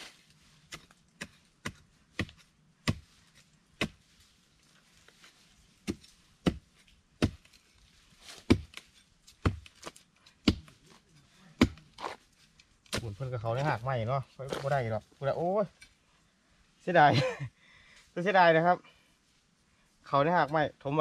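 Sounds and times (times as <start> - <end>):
spade striking ground: 0.0 - 4.1, 5.8 - 16.0.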